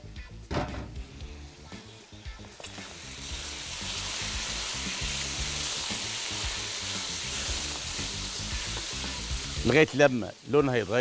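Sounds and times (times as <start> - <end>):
meat sizzling in oil: 1.0 - 11.0.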